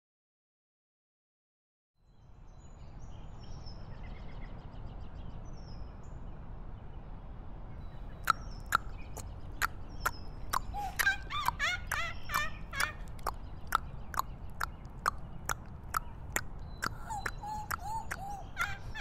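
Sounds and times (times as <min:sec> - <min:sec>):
faint bird chirps: 0:07.8 - 0:19.0.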